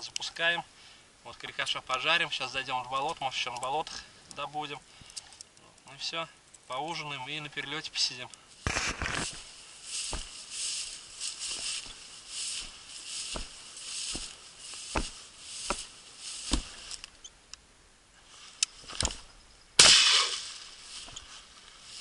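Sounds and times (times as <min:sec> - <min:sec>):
footsteps through tall grass: 0:08.5 - 0:17.2, 0:18.2 - 0:22.0
gun handling clicks: 0:18.6 - 0:19.2
loud shotgun shot: 0:19.8 - 0:20.5.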